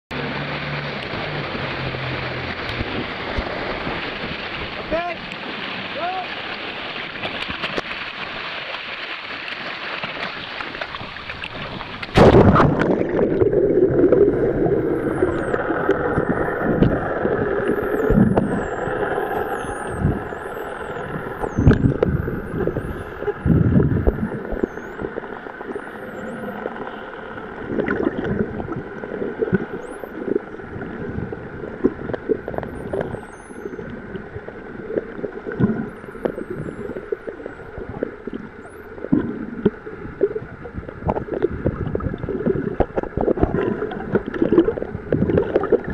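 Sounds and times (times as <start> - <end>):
splash: 0.1 - 27.0
rushing surface water: 0.1 - 45.9
underwater bubbling: 0.1 - 45.9
dolphins whistling: 13.3 - 27.5, 29.3 - 31.0, 32.5 - 34.2, 35.8 - 37.9, 38.5 - 39.0.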